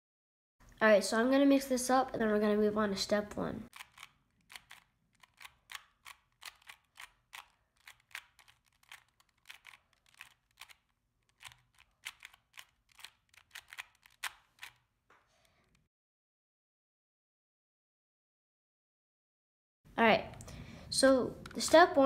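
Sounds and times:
puzzle cube plastic clicks: 3.7s - 14.8s.

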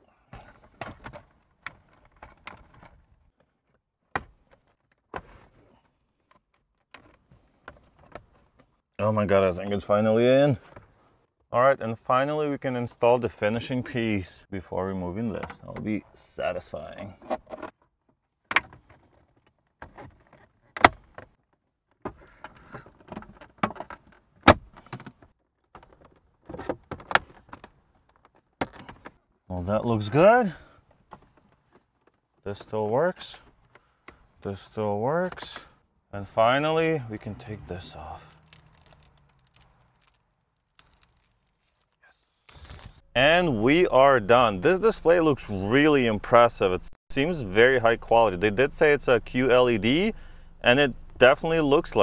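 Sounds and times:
plastic scraping and rustling: 18.6s - 29.2s, 37.7s - 43.0s
rustling: 37.6s - 43.1s.

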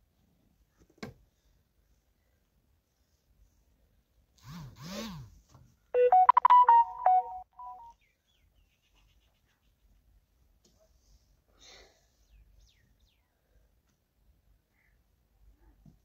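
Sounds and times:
electronic beeping jingle: 6.0s - 7.9s.

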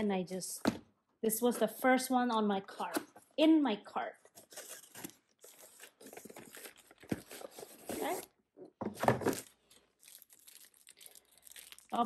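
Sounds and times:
cardboard and plastic wrap rustling: 4.3s - 12.0s.

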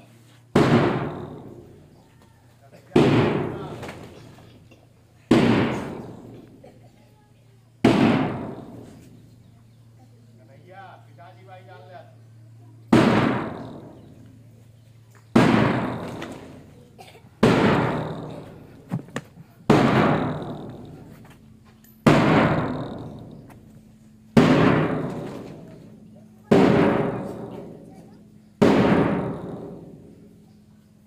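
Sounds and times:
bass drum beats: 19.7s - 21.2s.

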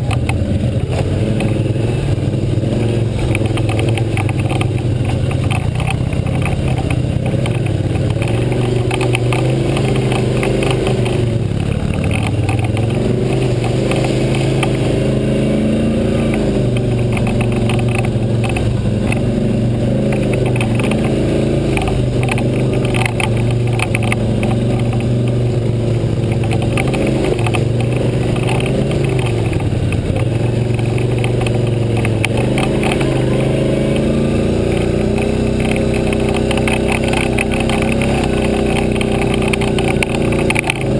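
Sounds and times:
atv engine revving: 0.0s - 40.9s.

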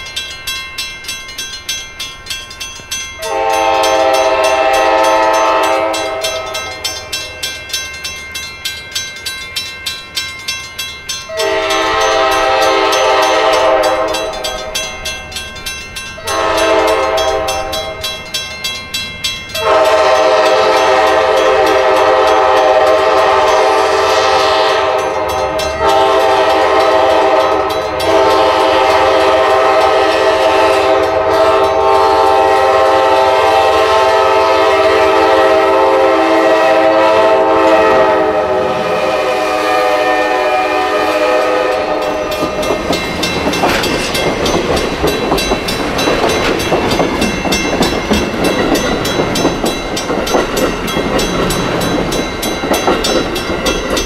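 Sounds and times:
crossing bell dinging: 0.0s - 54.0s
locomotive air horn blasts: 3.2s - 6.8s, 11.3s - 14.6s, 16.2s - 18.1s, 19.6s - 42.6s.

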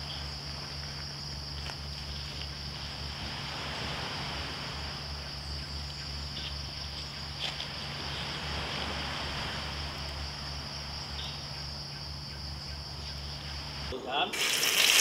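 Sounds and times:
insects chorus: 0.0s - 15.0s
stream rushing: 7.7s - 11.1s, 13.8s - 15.0s.

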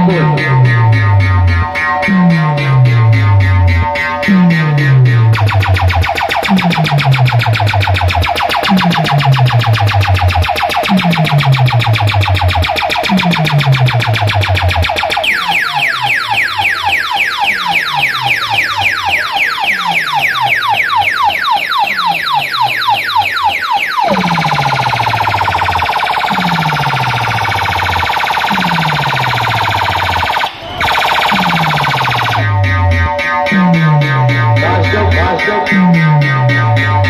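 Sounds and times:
deep bass drops: 0.0s - 15.0s, 30.8s - 37.0s
electronic falling zaps: 0.0s - 20.8s, 22.0s - 37.0s
siren-like electronic tone: 0.0s - 37.0s.

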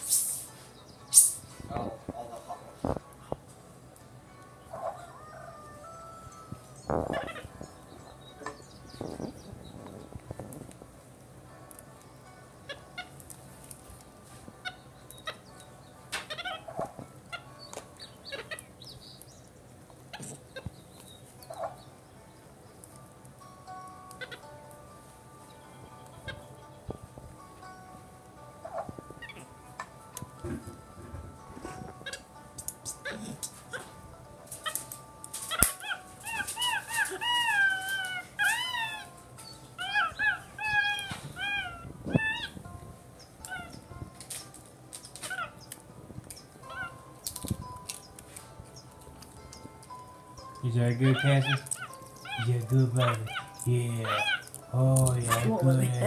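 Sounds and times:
monkey chirps and squeaks: 1.1s - 1.5s, 32.0s - 33.9s, 34.6s - 42.6s, 43.4s - 48.2s, 48.8s - 55.6s
monkey whistle-like peeps: 1.1s - 1.5s.

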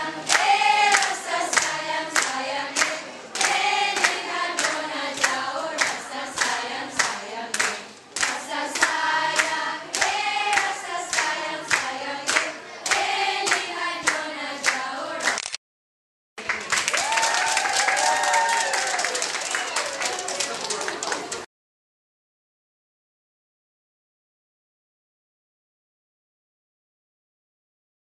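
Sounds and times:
girls singing together: 0.0s - 15.4s
hands clapping: 0.2s - 15.6s, 16.4s - 21.5s.

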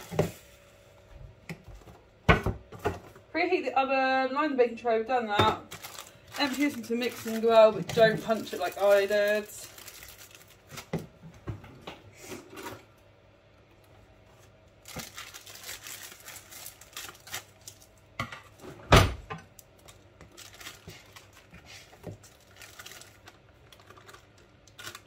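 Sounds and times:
packet crinkling and rustling: 5.6s - 11.2s, 14.3s - 18.0s, 19.5s - 25.0s.

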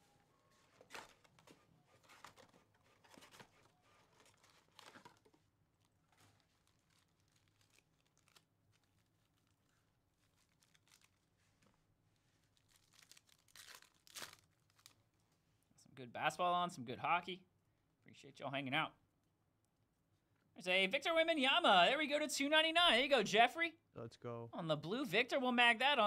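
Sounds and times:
foil card packs rustling: 0.5s - 11.8s, 12.4s - 15.0s.

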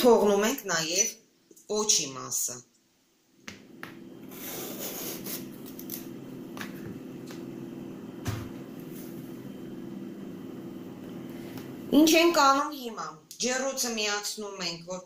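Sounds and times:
steady low hum: 3.4s - 13.0s
vegetable peeler scraping: 4.3s - 6.0s.

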